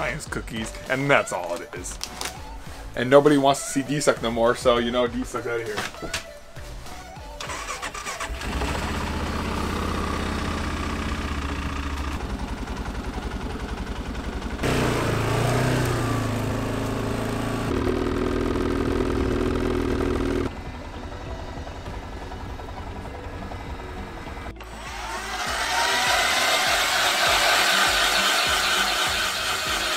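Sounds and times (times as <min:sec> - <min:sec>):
atv engine idling and revving: 0:08.2 - 0:29.9.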